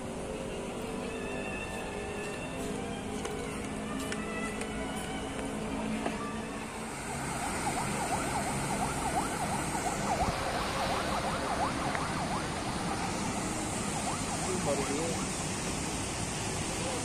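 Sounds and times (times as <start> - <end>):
outdoor city noise: 0.0 - 17.0
emergency siren yelping: 6.3 - 16.0.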